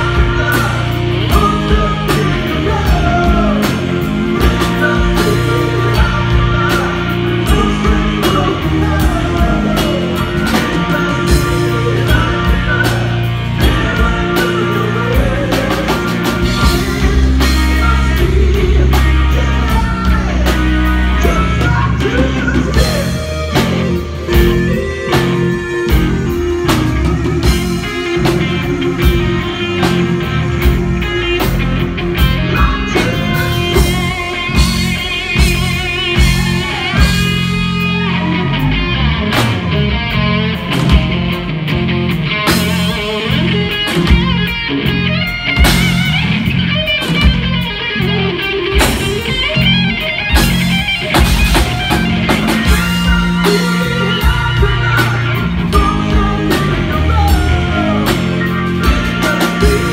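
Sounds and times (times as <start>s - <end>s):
man singing: 0.0s - 41.1s, 42.4s - 45.0s, 50.3s - 59.9s
drum kit: 0.0s - 59.9s
electric guitar: 0.0s - 59.9s.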